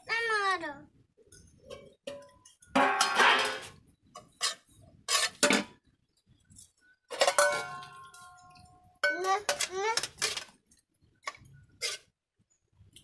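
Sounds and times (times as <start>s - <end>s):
steel plates clinking: 2.1s - 5.7s, 7.1s - 10.5s.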